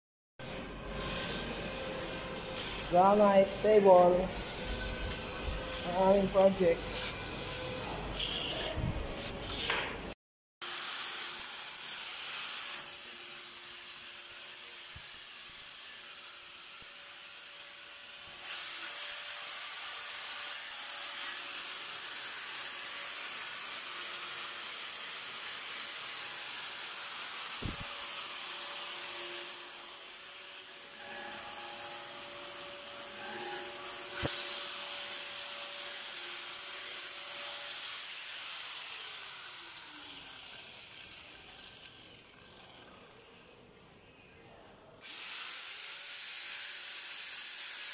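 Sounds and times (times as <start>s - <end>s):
spray paint can hissing: 6.9s - 8.8s.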